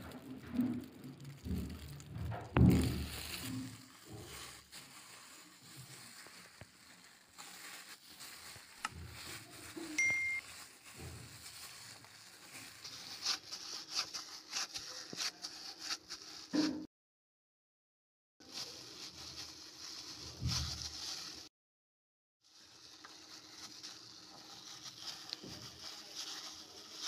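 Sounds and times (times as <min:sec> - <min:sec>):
hand squishing bread dough: 0:00.0 - 0:16.6, 0:18.4 - 0:21.5, 0:22.5 - 0:27.0
plastic bag crinkling: 0:00.0 - 0:16.7, 0:18.4 - 0:21.5, 0:22.4 - 0:27.0
brief ding: 0:10.0 - 0:10.4.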